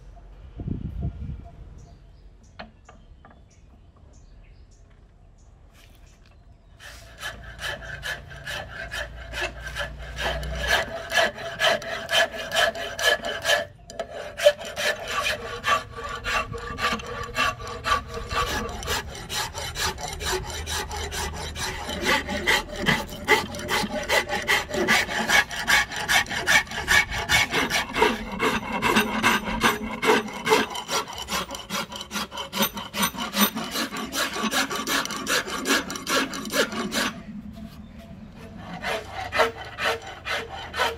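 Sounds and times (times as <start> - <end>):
hand file rasping on wood: 6.8 - 37.2, 38.6 - 40.9.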